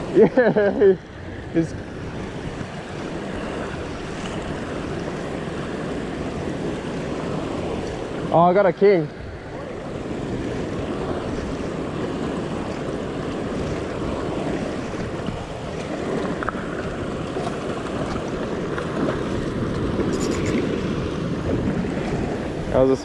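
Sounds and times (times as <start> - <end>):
wind on microphone: 0.0 - 8.4, 9.1 - 23.0
surf washing against rocks: 0.0 - 23.0.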